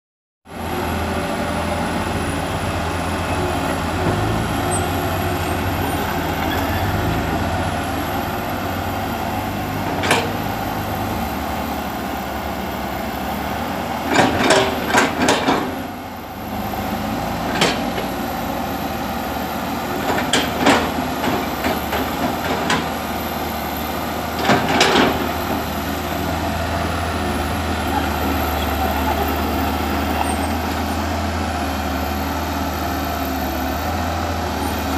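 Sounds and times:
excavator diesel engine running: 0:00.5 - 0:34.9
sharp knocks and clanks: 0:09.9 - 0:10.4, 0:14.1 - 0:15.8, 0:17.5 - 0:18.1, 0:20.0 - 0:22.9, 0:24.4 - 0:25.7.

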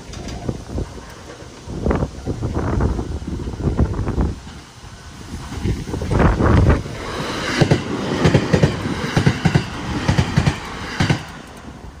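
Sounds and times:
train wheels clattering over rail joints: 0:00.0 - 0:12.0.

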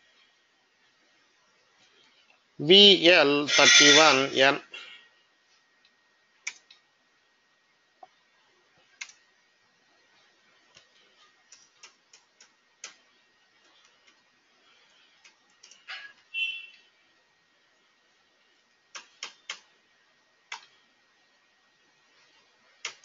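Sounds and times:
mouse clicks: 0:06.4 - 0:06.8, 0:18.9 - 0:19.7.

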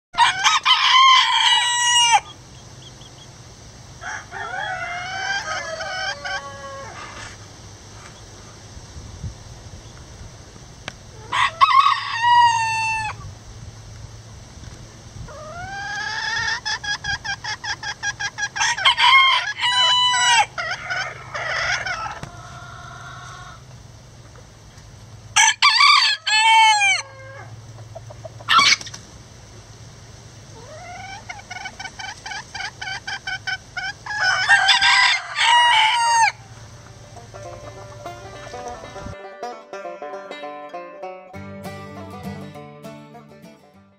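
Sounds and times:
roosters crowing: 0:00.2 - 0:03.2, 0:03.8 - 0:07.5, 0:11.1 - 0:13.2, 0:15.3 - 0:23.8, 0:25.2 - 0:28.9, 0:30.4 - 0:40.4
soft clucking calls: 0:15.2 - 0:24.6, 0:27.0 - 0:29.0, 0:30.4 - 0:41.2.

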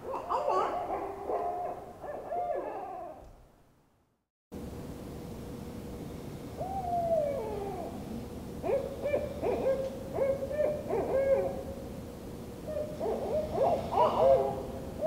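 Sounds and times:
owl-like hooting: 0:00.0 - 0:03.2, 0:06.6 - 0:11.8, 0:12.6 - 0:15.0.

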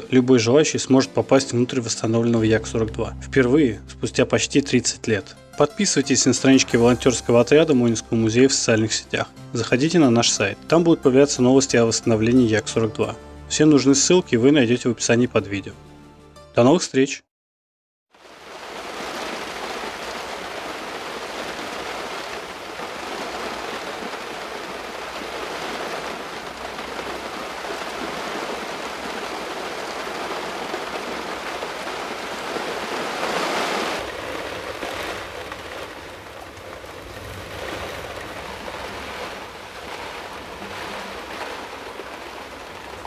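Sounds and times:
heavy rain on windscreen: 0:18.2 - 0:43.0.

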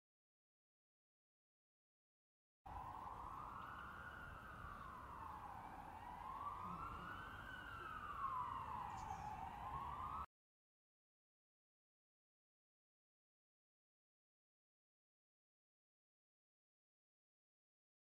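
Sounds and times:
emergency vehicle siren wailing: 0:02.7 - 0:10.3.

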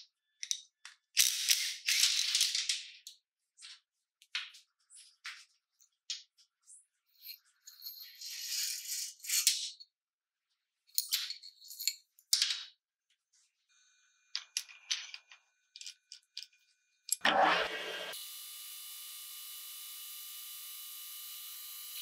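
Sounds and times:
metal parts clinking and rattling: 0:00.4 - 0:03.2, 0:07.2 - 0:09.9, 0:10.9 - 0:12.7, 0:14.4 - 0:16.6.

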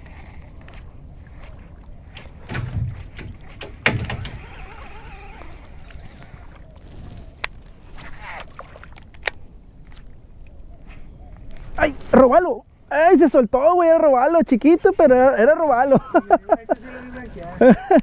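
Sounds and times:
wind rumble on microphone: 0:00.0 - 0:08.4.

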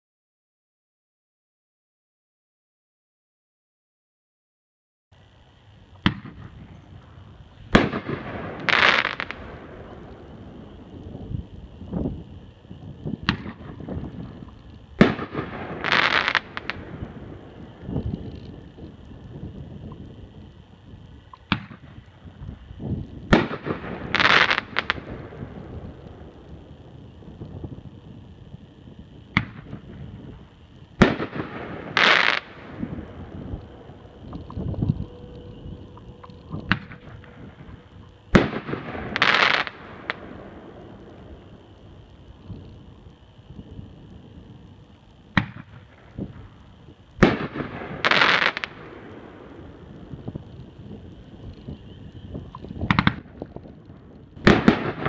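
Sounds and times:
firework crackling: 0:05.2 - 0:55.0
firework launch pop: 0:06.0 - 0:06.5, 0:52.6 - 0:53.2
firework burst bang: 0:07.7 - 0:09.4, 0:31.0 - 0:33.1.

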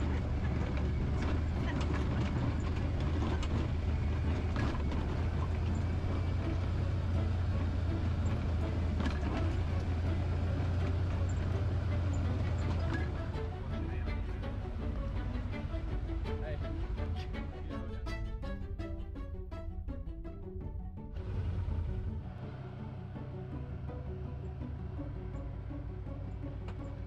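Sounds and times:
knocks and rattles: 0:00.0 - 0:06.7
low engine drone: 0:00.0 - 0:27.0.

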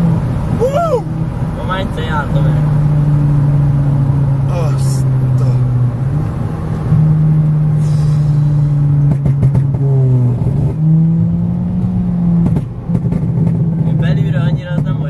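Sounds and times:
car engine accelerating: 0:00.0 - 0:15.0.

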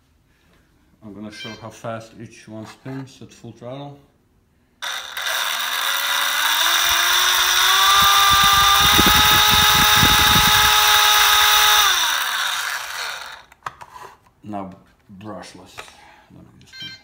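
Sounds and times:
electric motor whining: 0:04.8 - 0:13.5
rattle: 0:04.8 - 0:13.5.

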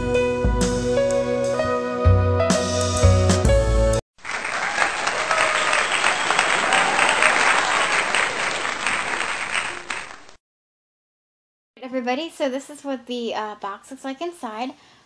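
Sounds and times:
instrumental music: 0:00.0 - 0:04.0
crowd applauding: 0:04.2 - 0:10.4.

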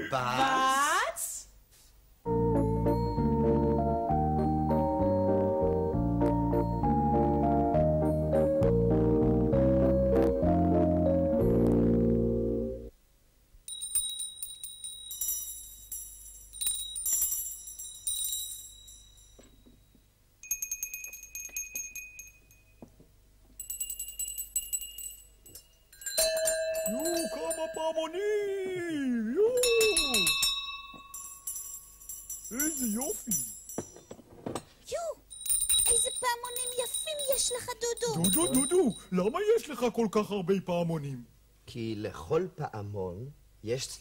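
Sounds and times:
organ music: 0:02.3 - 0:12.9
hand bells ringing: 0:13.7 - 0:22.9, 0:23.6 - 0:28.1, 0:29.5 - 0:34.2, 0:35.3 - 0:39.3.

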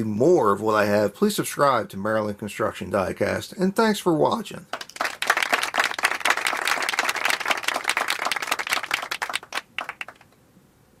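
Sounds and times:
crowd applauding: 0:04.8 - 0:10.2.

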